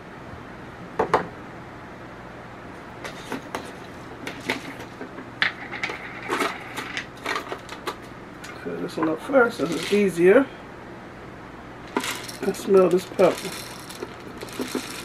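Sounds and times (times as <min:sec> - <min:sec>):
peppercorns rattling in jar: 0:09.6 - 0:10.2, 0:11.9 - 0:15.0.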